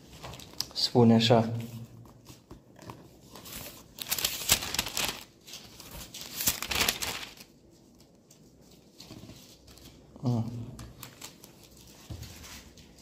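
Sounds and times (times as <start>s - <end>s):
thin pages rustling: 0.0s - 0.8s, 2.0s - 10.2s.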